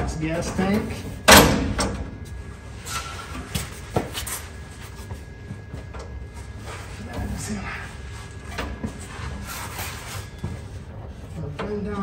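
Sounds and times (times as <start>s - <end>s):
shuffling: 2.3s - 12.0s.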